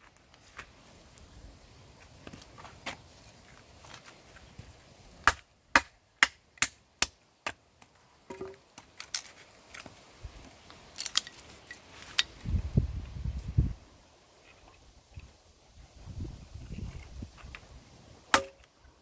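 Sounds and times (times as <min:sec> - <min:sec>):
knife chopping into wood: 0:05.2 - 0:07.6, 0:18.3 - 0:18.6.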